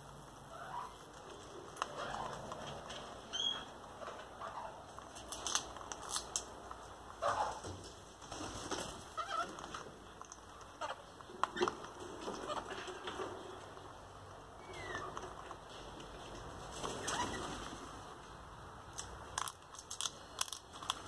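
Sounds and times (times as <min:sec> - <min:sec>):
parrot cracking nut shell: 0:05.2 - 0:06.6, 0:18.9 - 0:21.0.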